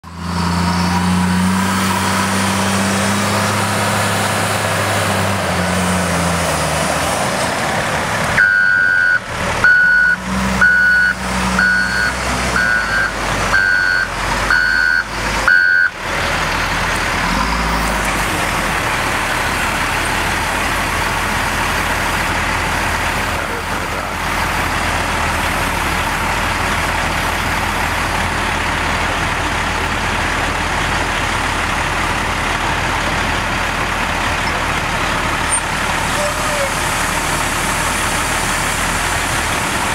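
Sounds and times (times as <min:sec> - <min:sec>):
loader diesel engine running: 0:00.0 - 0:39.9
reversing alarm beeps: 0:08.4 - 0:16.0.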